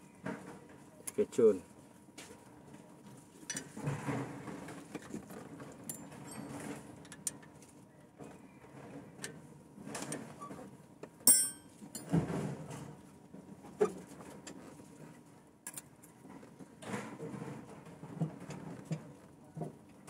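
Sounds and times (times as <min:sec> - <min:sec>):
ringing metal clink: 0:11.3 - 0:11.7.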